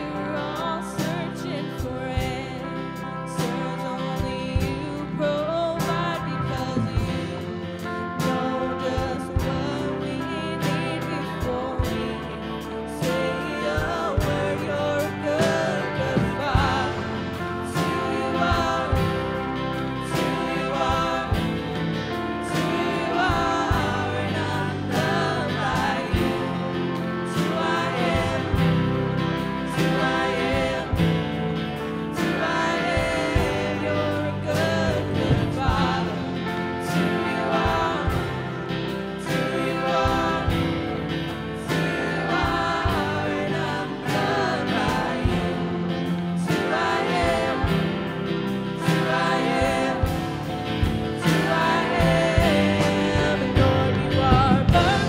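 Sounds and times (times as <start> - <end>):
woman singing: 0.0 - 21.7, 22.4 - 29.0, 32.2 - 41.0, 51.2 - 55.0
electric bass: 0.0 - 55.0
strummed acoustic guitar: 0.0 - 55.0
drum kit beat: 0.5 - 55.0.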